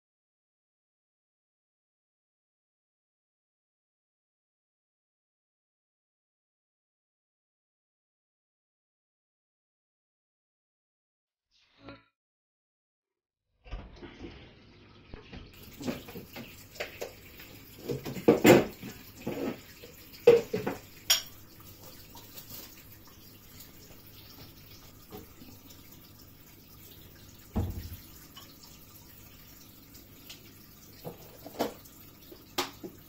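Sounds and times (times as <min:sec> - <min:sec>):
kitchen knocks and clatter: 0:17.8 - 0:21.4, 0:27.5 - 0:28.1, 0:31.0 - 0:31.9.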